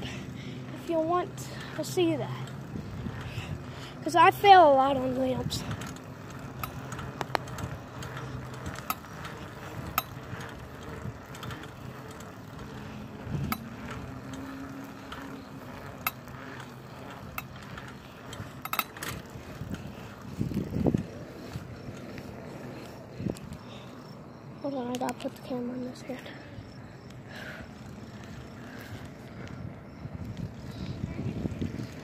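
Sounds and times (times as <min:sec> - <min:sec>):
bicycle tyres rolling on pavement: 0:00.0 - 0:32.0
bike clicks and rattles: 0:00.0 - 0:32.0.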